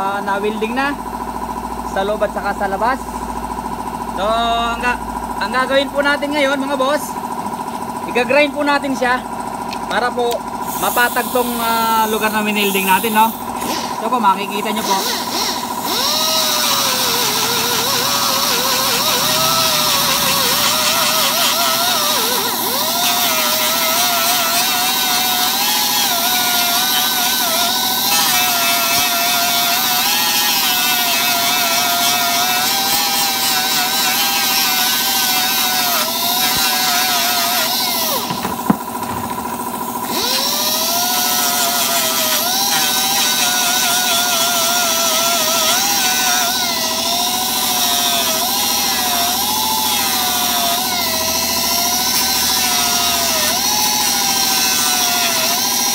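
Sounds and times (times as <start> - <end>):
electric grinder grinding plastic: 10.7 - 55.9
grinder click: 14.8 - 51.2.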